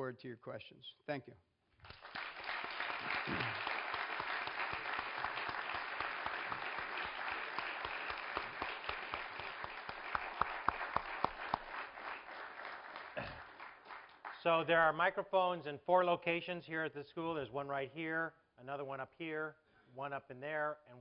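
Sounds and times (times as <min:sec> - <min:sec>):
audience applauding: 0:01.8 - 0:14.6.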